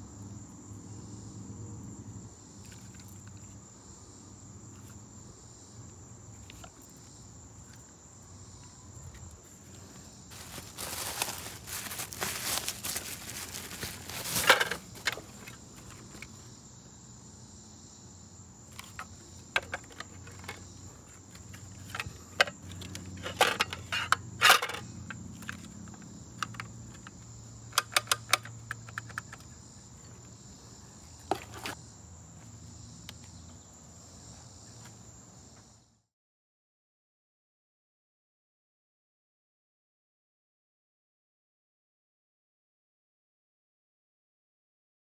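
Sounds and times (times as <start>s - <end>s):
insects chirring: 0.0s - 36.0s
bubble wrap crinkling: 10.3s - 15.0s
clicks and knocks of plastic and metal: 10.4s - 16.4s, 18.7s - 20.7s, 21.3s - 29.5s.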